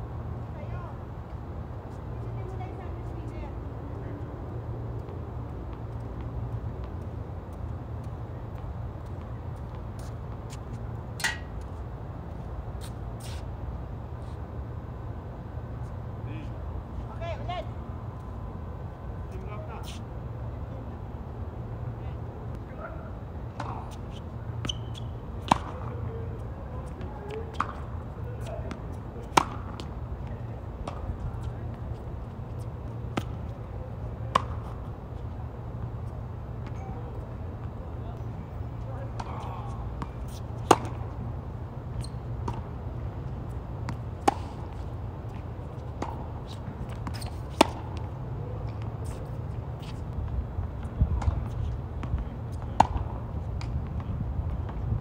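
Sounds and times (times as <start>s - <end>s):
tennis ball hits from racket: 11.2s - 11.5s, 24.7s - 25.9s, 28.7s - 29.9s, 34.3s - 34.8s, 40.0s - 41.0s, 46.9s - 48.0s
distant ball hits and bounces: 27.2s - 29.9s.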